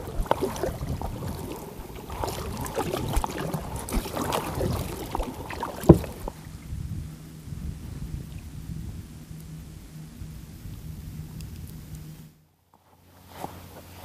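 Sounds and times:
paddles splashing in water: 0:00.0 - 0:06.8.

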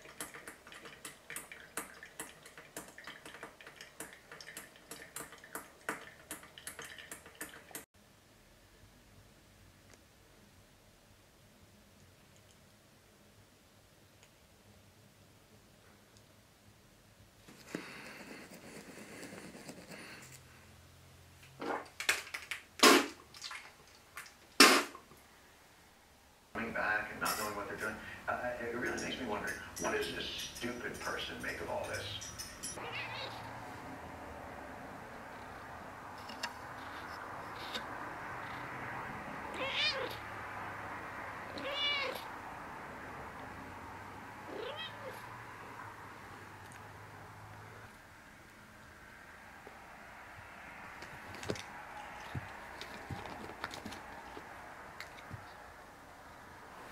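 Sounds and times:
person spitting into sink: 0:22.8 - 0:25.0
cat meowing: 0:32.8 - 0:33.6, 0:39.5 - 0:40.2, 0:41.5 - 0:42.3, 0:44.5 - 0:45.3.

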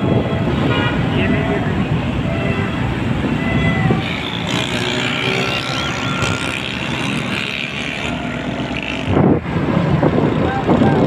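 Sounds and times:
motorcycles and cars passing: 0:00.0 - 0:11.0.

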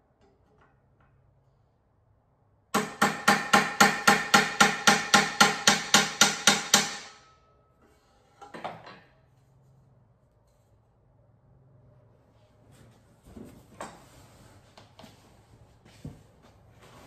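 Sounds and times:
hammer striking metal: 0:02.7 - 0:07.7.

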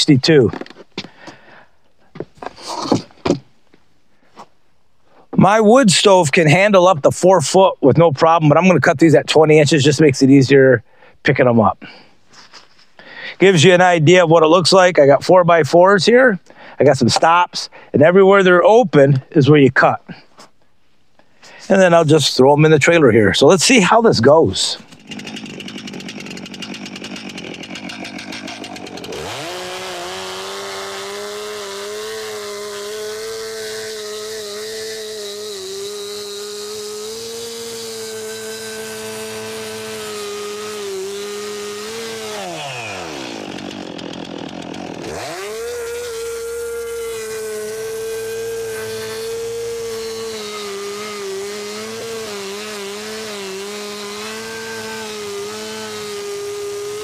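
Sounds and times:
chainsaw cutting wood: 0:02.2 - 0:03.5, 0:24.8 - 0:57.0.

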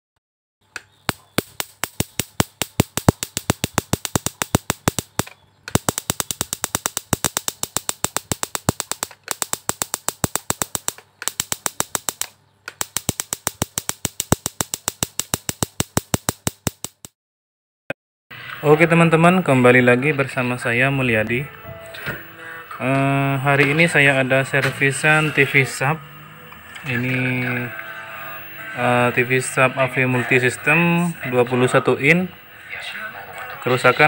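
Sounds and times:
electrical sparks snapping: 0:00.8 - 0:17.2.

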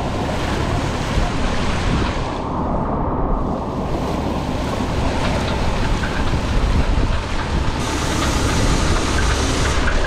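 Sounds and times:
rushing water: 0:00.0 - 0:10.0
strong wind: 0:00.0 - 0:10.0
wind buffeting microphone: 0:00.0 - 0:10.0.

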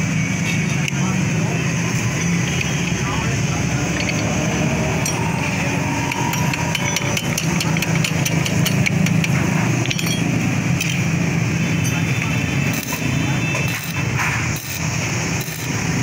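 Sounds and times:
metal tool tapping lever: 0:06.1 - 0:11.0.

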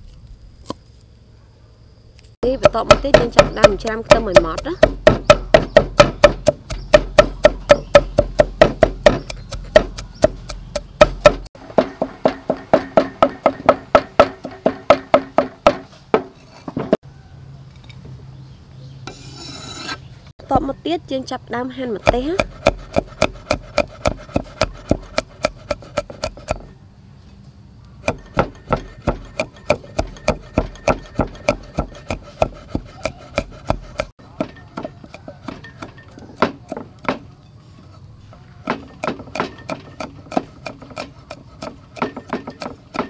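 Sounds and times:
cleaver chopping on wooden block: 0:02.5 - 0:17.0, 0:22.0 - 0:26.7, 0:28.0 - 0:37.3, 0:38.6 - 0:43.0.

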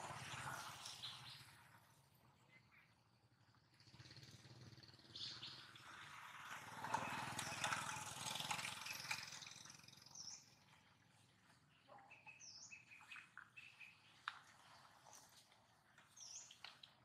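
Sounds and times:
bird chirping: 0:05.1 - 0:05.8, 0:11.7 - 0:14.3, 0:16.1 - 0:16.7.

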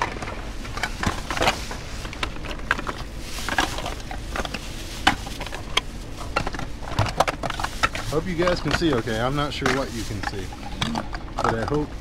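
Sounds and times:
rummaging through trash: 0:00.0 - 0:12.0.

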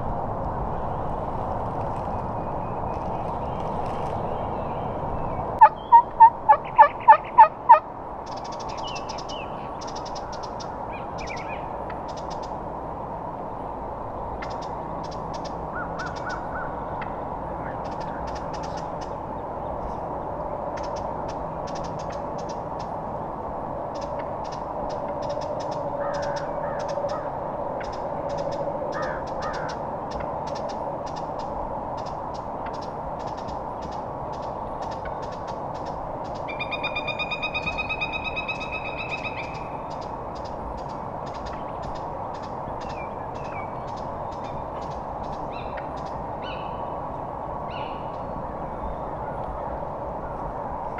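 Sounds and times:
turkey yelping: 0:05.6 - 0:07.8
faint songbird chirps: 0:08.2 - 0:12.5, 0:32.0 - 0:47.0.

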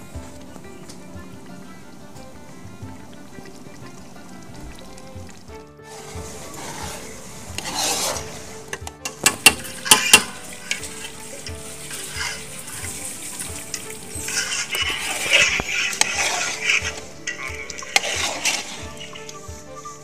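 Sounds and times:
curry sizzling: 0:00.0 - 0:20.0
ladle stirring in pot: 0:00.0 - 0:20.0
ladle knocking against pot: 0:08.7 - 0:19.2.

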